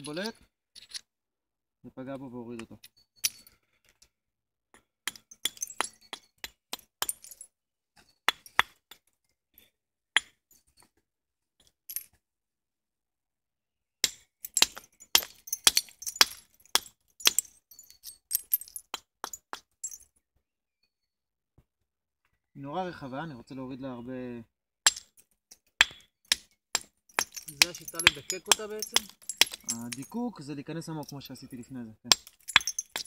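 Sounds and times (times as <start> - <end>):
antler hammer striking flint: 14.0 - 20.0, 24.8 - 30.1, 32.1 - 33.0.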